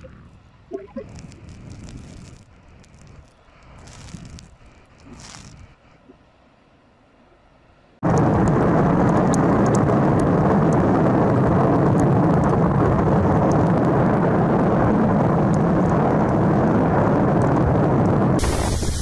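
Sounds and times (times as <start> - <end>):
faint sharp crackles: 0.0 - 6.2, 8.0 - 19.0
volcano roaring: 8.0 - 19.0.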